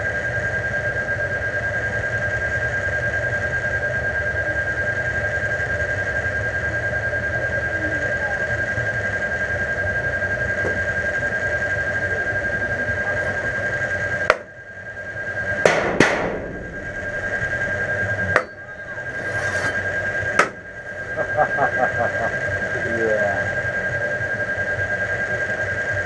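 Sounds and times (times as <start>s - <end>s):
steady hum: 7.3s - 26.0s
high whine: 10.8s - 26.0s
sharp bangs: 15.6s - 21.2s.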